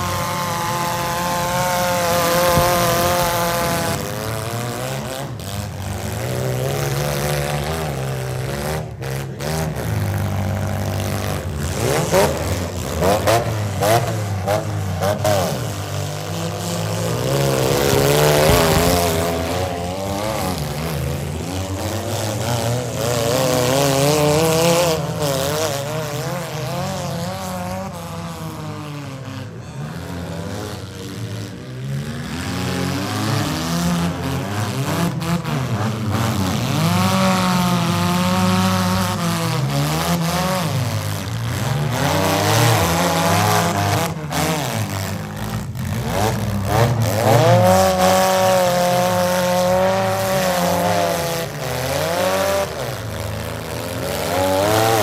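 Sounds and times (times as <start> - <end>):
car engines revving: 0.0 - 55.0.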